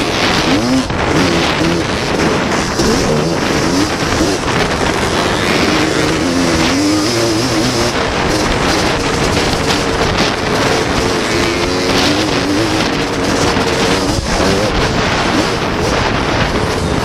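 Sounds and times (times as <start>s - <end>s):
three-wheeler engine revving: 0.0s - 17.0s.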